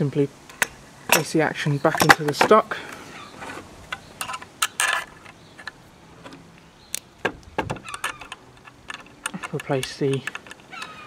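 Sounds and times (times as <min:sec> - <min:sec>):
metal parts clicking: 0:03.4 - 0:11.0.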